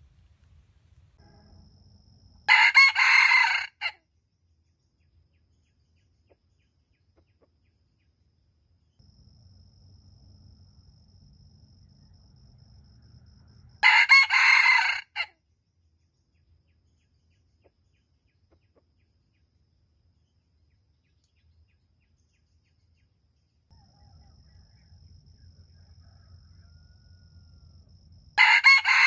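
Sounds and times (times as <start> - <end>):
rooster crowing: 2.5 - 4.0, 13.8 - 15.3, 23.7 - 27.8, 28.4 - 29.0.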